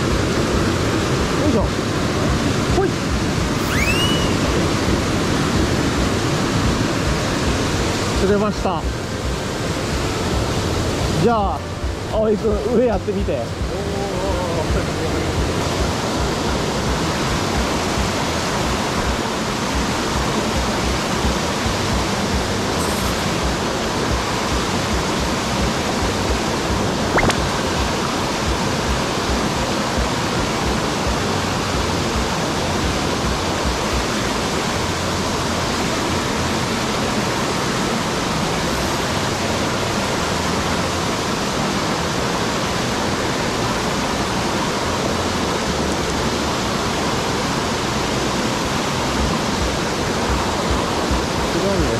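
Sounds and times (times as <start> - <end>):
rushing stream water: 0.0 - 51.9
brief click: 27.1 - 27.4.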